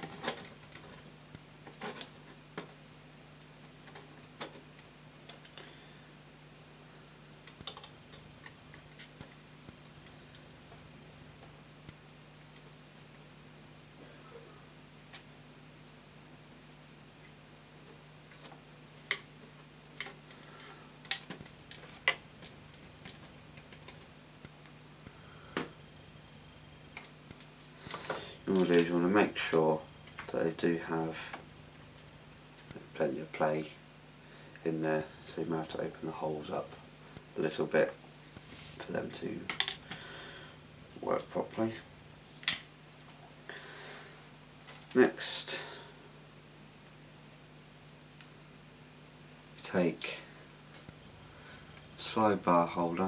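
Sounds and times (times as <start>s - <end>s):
faint steady hum: 0.0s - 53.0s
small clicks and light taps: 7.4s - 10.8s.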